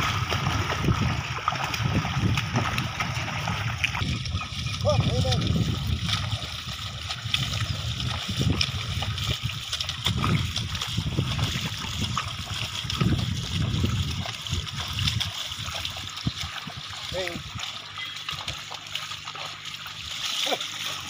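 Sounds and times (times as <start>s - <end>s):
hooves and plough splashing in mud: 0.0s - 21.0s.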